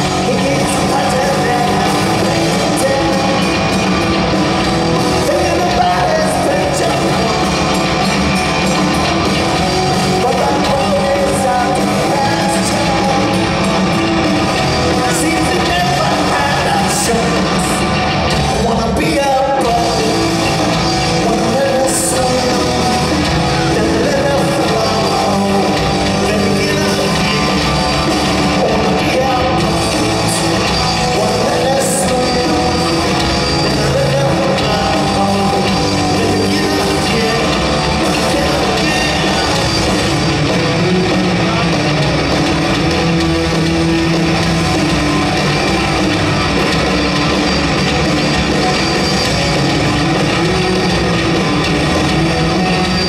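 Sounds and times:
person singing lead vocal: 0.0 - 8.8, 9.9 - 42.1
bass guitar: 0.0 - 53.0
distorted electric guitars: 0.0 - 53.0
drums: 0.0 - 53.0.

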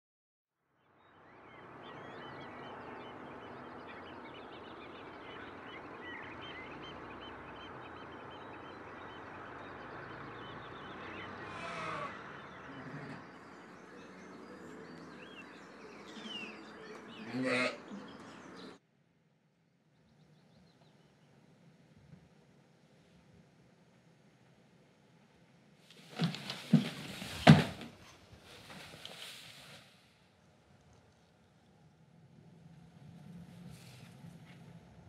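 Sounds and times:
steady outdoor hiss: 0.6 - 35.0
small birds chirping: 0.9 - 18.8
loud animal call: 4.8 - 13.7, 17.2 - 18.1.

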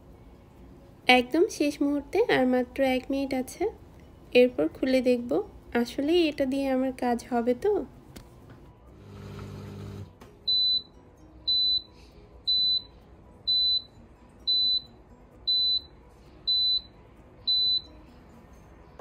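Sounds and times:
dishwasher high-pitched beeps: 10.5 - 13.9, 14.5 - 14.9, 15.5 - 18.0.

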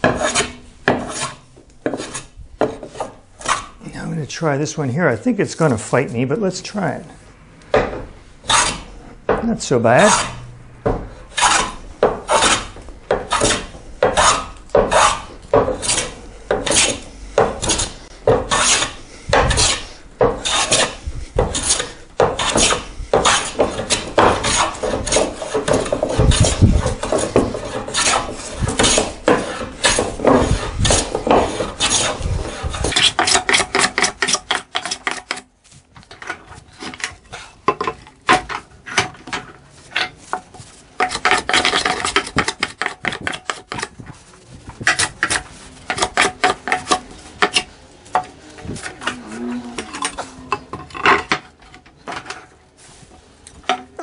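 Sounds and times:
hand plane rasping strokes: 0.0 - 3.8, 8.4 - 9.2, 10.0 - 10.4, 11.1 - 35.4.

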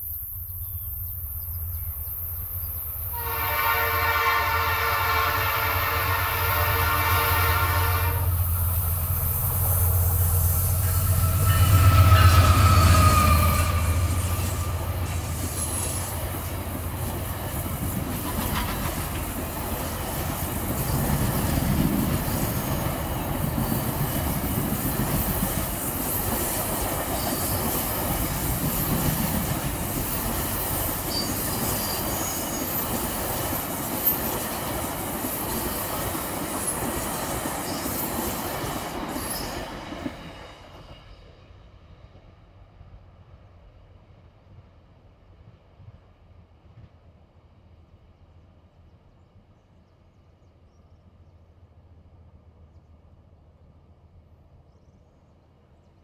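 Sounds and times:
faint high wheel squeals: 10.6 - 14.6, 30.1 - 34.4.

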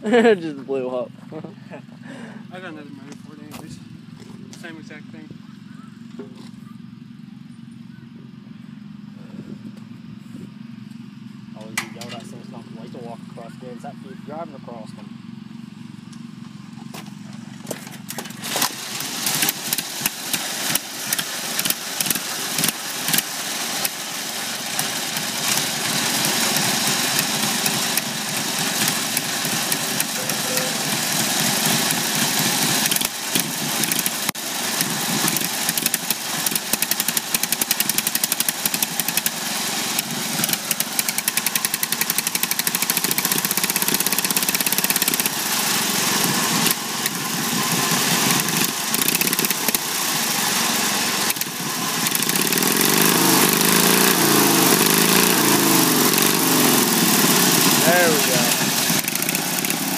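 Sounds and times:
popping exhaust: 0.0 - 59.9
mower engine starting: 13.6 - 59.9.

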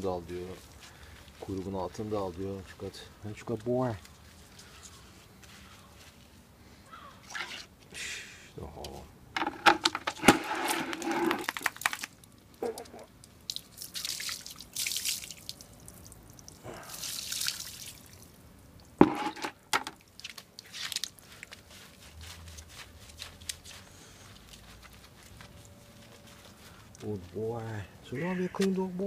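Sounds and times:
water splashing and dripping: 11.4 - 23.8.

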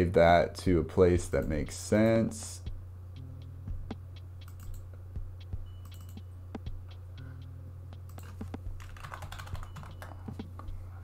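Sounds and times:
low electrical hum: 0.0 - 11.0
computer keyboard and mouse clicks: 4.4 - 4.8, 8.1 - 10.4.

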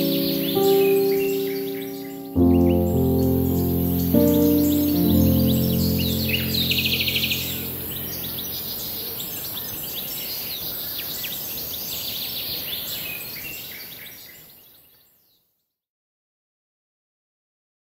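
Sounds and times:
steady outdoor hiss: 0.0 - 13.0
small birds chirping: 0.0 - 15.5.

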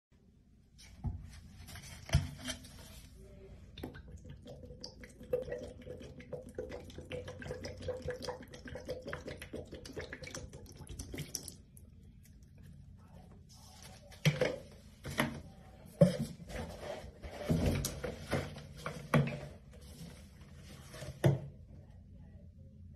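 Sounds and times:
liquid pouring into plastic basin: 3.8 - 12.4.

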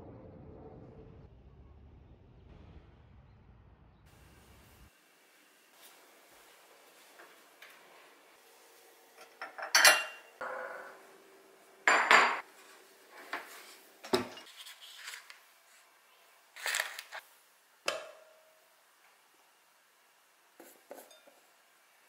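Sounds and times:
dishes clinking and clattering: 9.2 - 11.1, 11.8 - 12.5, 13.2 - 14.6, 20.9 - 21.5.

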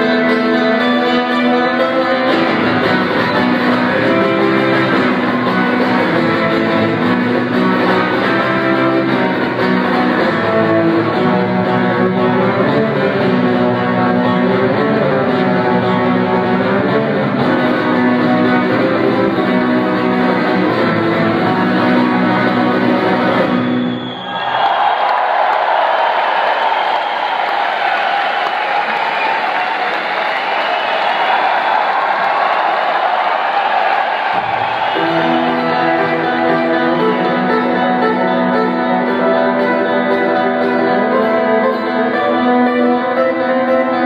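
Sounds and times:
live guitar solo: 0.0 - 24.0, 34.3 - 44.0.

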